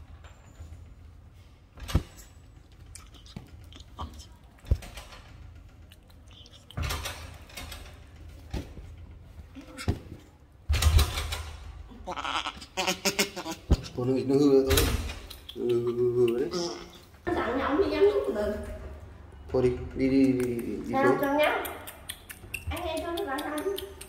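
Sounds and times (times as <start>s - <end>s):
monkey making soft calls: 12.0s - 14.1s, 15.2s - 17.1s
sharp clicks: 14.8s - 16.5s, 20.2s - 24.0s.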